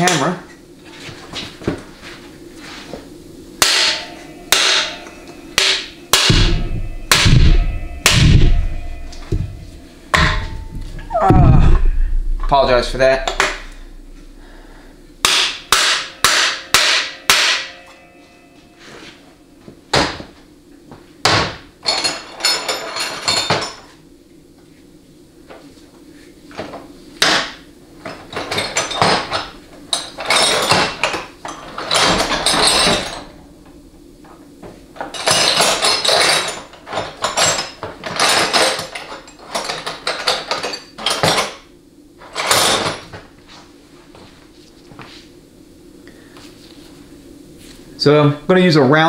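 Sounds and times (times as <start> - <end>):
sharp knocks: 5.6 - 14.3
metal hand tools clattering: 35.1 - 41.5.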